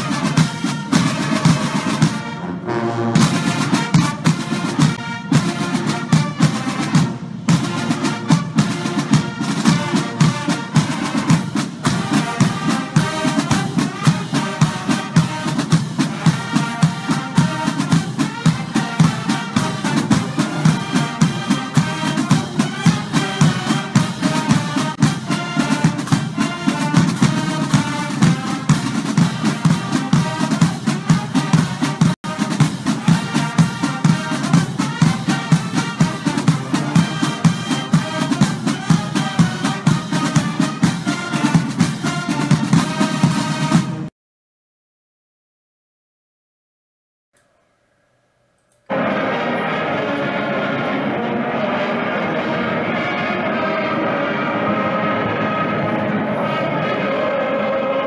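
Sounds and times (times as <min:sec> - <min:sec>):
music with fast drum beat: 0:00.0 - 0:02.4, 0:03.2 - 0:44.1.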